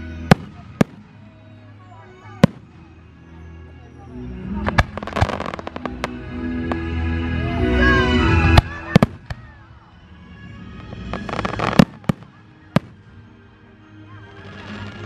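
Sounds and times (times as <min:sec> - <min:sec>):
fireworks crackling: 0:00.0 - 0:03.0, 0:04.5 - 0:07.0, 0:08.2 - 0:09.8, 0:10.6 - 0:13.6, 0:14.3 - 0:15.0
background music: 0:00.0 - 0:15.0
fireworks bursting with bangs: 0:00.1 - 0:01.4, 0:02.3 - 0:02.9, 0:04.6 - 0:06.9, 0:08.4 - 0:09.6, 0:10.8 - 0:13.4.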